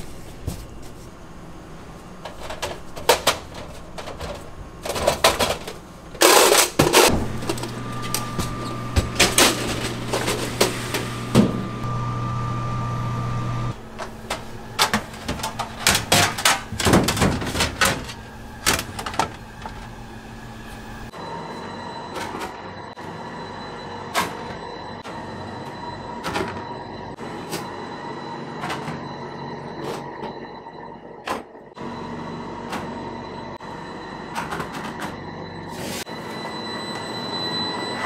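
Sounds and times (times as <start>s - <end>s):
electric hum: 0.0s - 21.2s
metal pans clattering on shelves: 14.3s - 19.4s.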